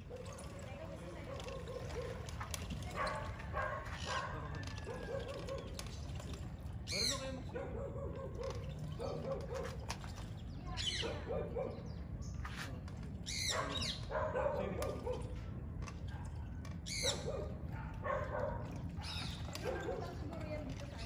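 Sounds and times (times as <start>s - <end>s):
dog barking and yipping: 13.5s - 15.3s, 16.9s - 20.2s.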